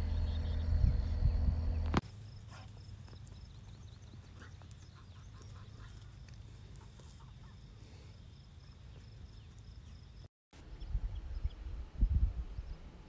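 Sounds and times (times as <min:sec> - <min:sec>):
low rumble: 0:00.0 - 0:02.0
wind buffeting microphone: 0:00.0 - 0:02.0, 0:10.7 - 0:13.0
bird chirps: 0:00.0 - 0:07.7
insect tone: 0:00.0 - 0:10.3.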